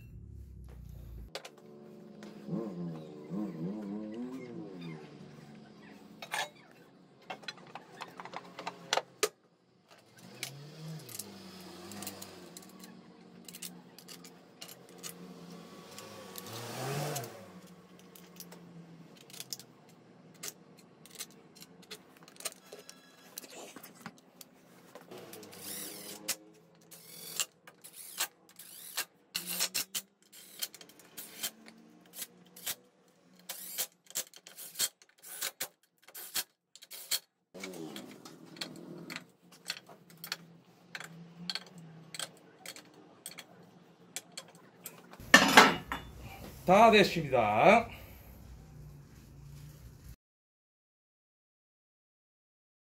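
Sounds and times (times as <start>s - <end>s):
metal tools clinking: 6.2s - 8.8s, 36.8s - 43.6s, 44.2s - 46.5s
power tool running: 25.1s - 29.7s.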